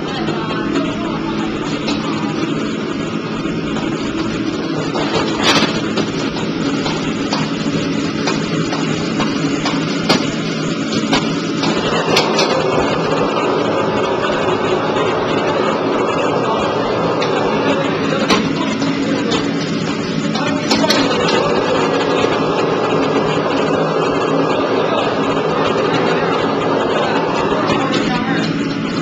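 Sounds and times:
gas burner and extraction hood rushing: 0.0s - 29.0s
metal clanks against wok: 3.7s - 13.1s, 18.1s - 21.4s.

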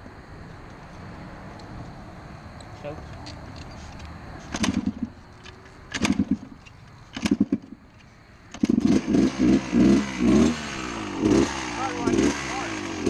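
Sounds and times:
dirt bike engine starting and revving: 4.5s - 5.2s, 5.9s - 7.8s, 8.5s - 13.0s.

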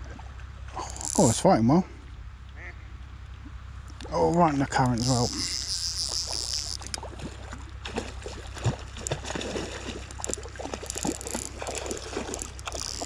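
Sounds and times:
fishing reel clicks and knocks: 0.8s - 1.4s, 4.7s - 7.0s, 10.8s - 11.6s, 12.3s - 13.0s.

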